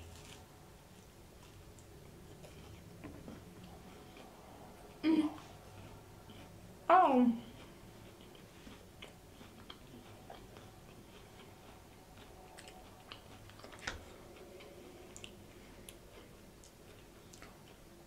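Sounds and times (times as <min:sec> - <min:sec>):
chewing with wet mouth clicks: 0:07.6 - 0:18.0.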